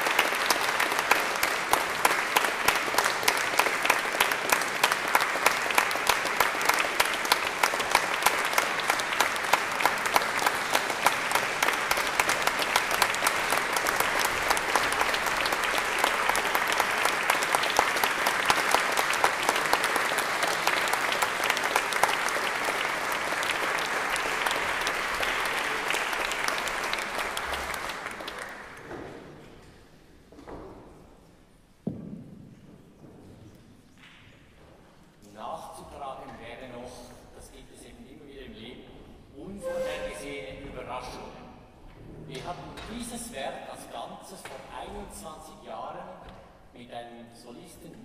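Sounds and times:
audience applauding: 0.0s - 28.9s.

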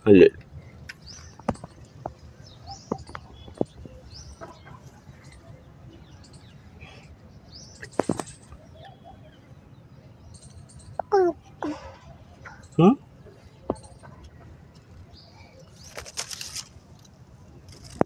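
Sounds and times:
faint bird chirps: 2.4s - 14.5s
leaves and branch rustling: 15.6s - 17.1s.

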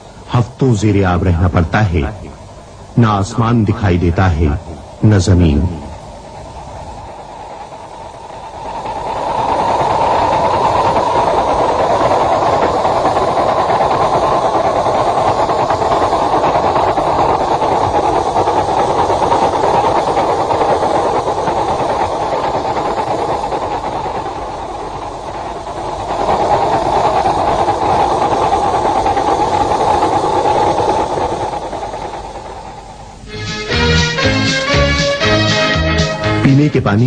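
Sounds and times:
loud rushing noise: 0.0s - 37.0s.

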